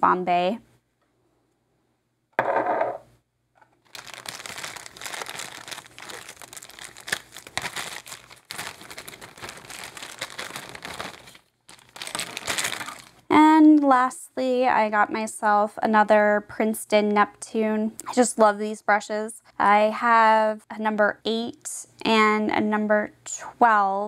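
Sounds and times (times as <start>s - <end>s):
plastic packaging crinkling: 3.8s - 13.3s.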